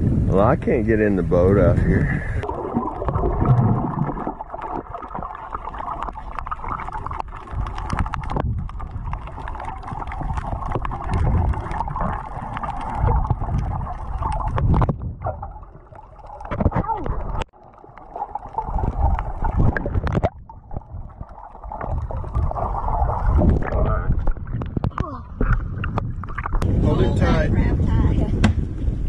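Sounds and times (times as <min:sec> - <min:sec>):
muffled underwater rush: 0:00.0 - 0:29.0
small clicks and crackles: 0:05.1 - 0:14.9.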